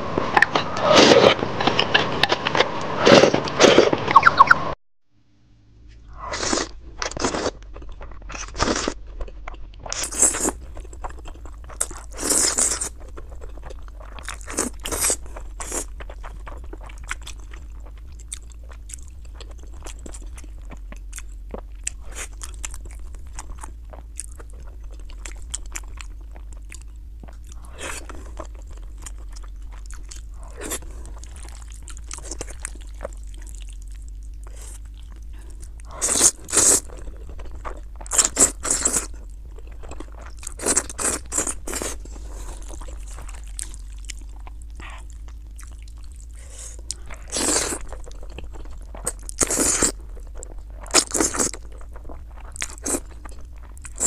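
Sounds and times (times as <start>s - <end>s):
wet chewing: 6.3s - 54.0s
noodles slurped: 34.4s - 39.1s, 45.9s - 50.0s, 50.8s - 54.0s.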